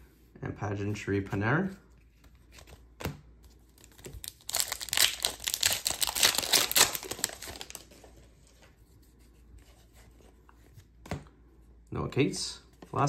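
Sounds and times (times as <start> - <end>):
foil wrapper tearing and crinkling: 3.8 - 7.9.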